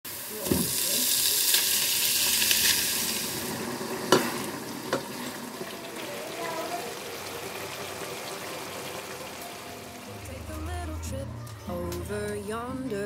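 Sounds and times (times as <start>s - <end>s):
meat sizzling in hot oil: 0.1s - 10.0s.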